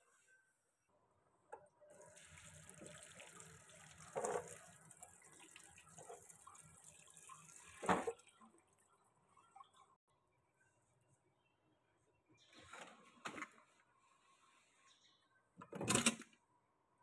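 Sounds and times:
tap water running into colander: 1.9s - 8.8s.

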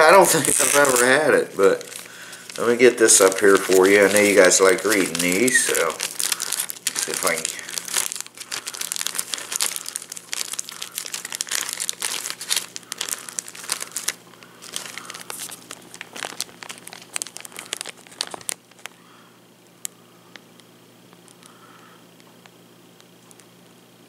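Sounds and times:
plastic film crinkling: 0.0s - 19.0s.

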